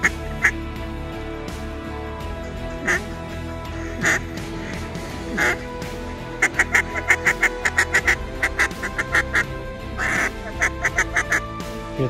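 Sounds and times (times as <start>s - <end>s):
duck quacks: 0.0s - 0.6s, 2.8s - 11.5s
music: 0.0s - 12.0s.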